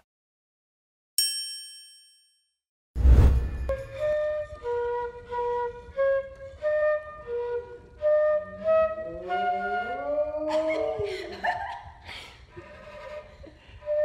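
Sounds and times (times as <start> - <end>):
flute playing slow melody: 3.7 - 11.1, 13.7 - 14.0.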